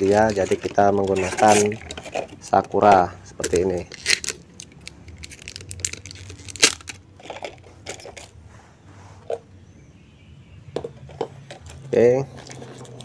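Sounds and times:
metal filter handling noise: 0:00.0 - 0:08.4
plastic wrapping crinkling: 0:00.0 - 0:08.4, 0:11.6 - 0:13.0.

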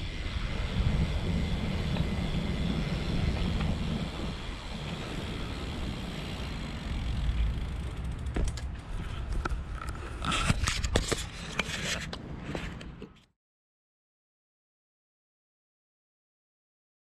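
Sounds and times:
bike rolling rumble on paving: 0:00.0 - 0:13.0
bike clicks and scrapes: 0:00.0 - 0:13.3
wind: 0:00.0 - 0:13.3.

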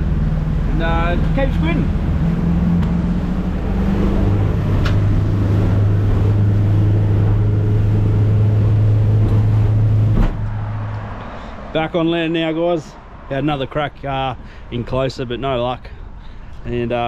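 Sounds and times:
motorboat engine drone: 0:00.0 - 0:11.4
wind and water rushing: 0:00.0 - 0:11.7.

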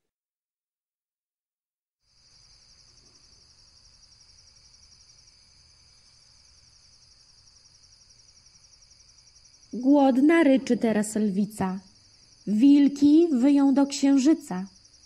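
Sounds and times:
crickets chirping: 0:02.0 - 0:15.0.

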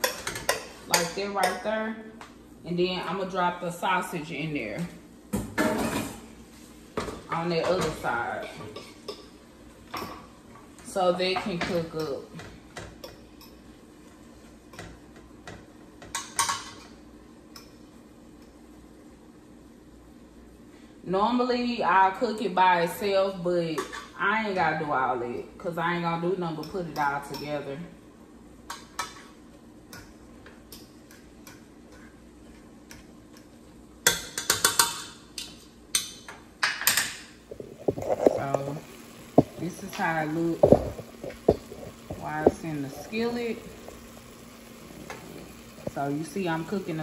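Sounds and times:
sharp clicks and clatter from pot: 0:36.0 - 0:44.1
fat popping in pot: 0:36.6 - 0:44.4.

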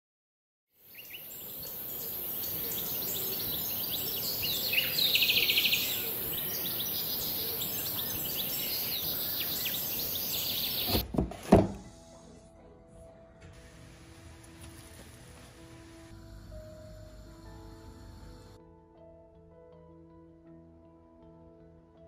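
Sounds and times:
steady high hiss: 0:00.8 - 0:11.0, 0:13.6 - 0:18.6
birds chirping and whistling: 0:00.9 - 0:11.0.

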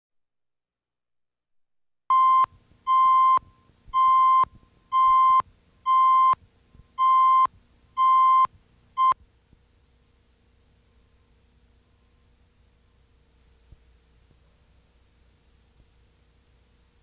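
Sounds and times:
electronic countdown beeps: 0:02.1 - 0:06.4, 0:07.0 - 0:09.2.

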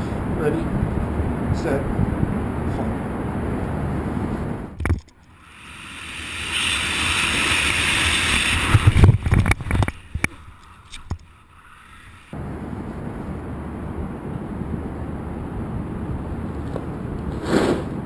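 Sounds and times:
wind buffeting microphone: 0:00.0 - 0:04.8
rushing air hiss: 0:05.4 - 0:09.2, 0:17.3 - 0:18.0.

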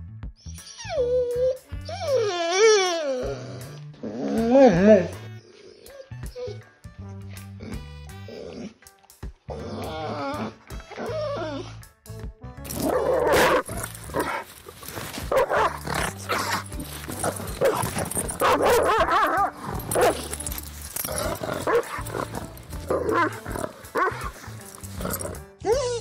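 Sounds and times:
background music: 0:00.0 - 0:26.0
dog making wavering calls: 0:12.8 - 0:26.0.

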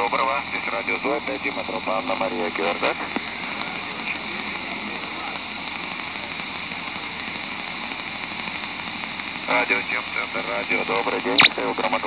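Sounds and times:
radio static and hiss: 0:11.4 - 0:11.9.

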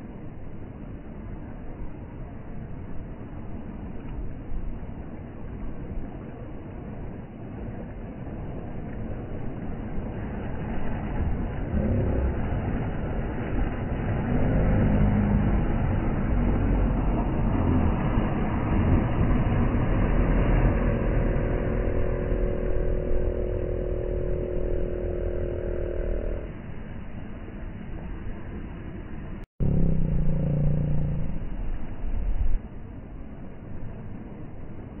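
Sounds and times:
steady multi-tone hum: 0:00.0 - 0:35.0
outboard motor running: 0:10.1 - 0:26.6, 0:29.6 - 0:31.7.

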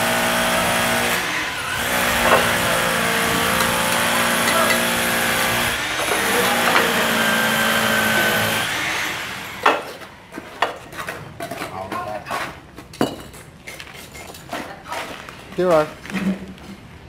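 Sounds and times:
sharp knocks: 0:02.2 - 0:02.7.

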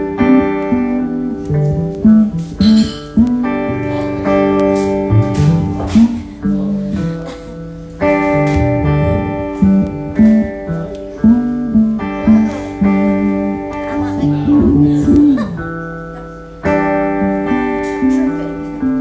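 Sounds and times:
solo guitar playing: 0:00.0 - 0:19.0.

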